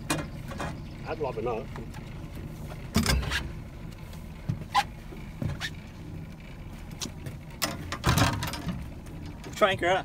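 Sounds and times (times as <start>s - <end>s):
boat motor hum: 0.0s - 10.0s
knocks and clatters: 7.0s - 9.4s.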